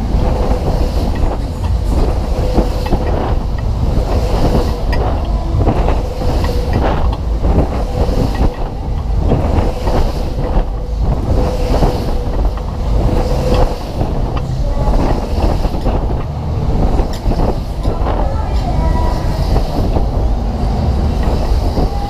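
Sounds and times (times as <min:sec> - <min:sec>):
fairground ride rumbling: 0:00.0 - 0:22.0
wind buffeting microphone: 0:00.0 - 0:22.0.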